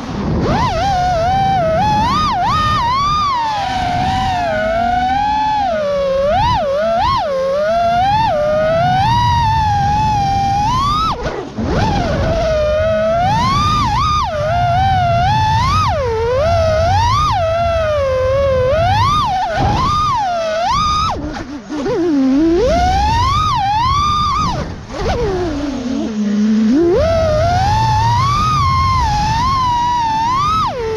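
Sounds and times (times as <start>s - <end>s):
low wind rush: 0.0s - 30.9s
quadcopter motors whining: 0.0s - 30.9s.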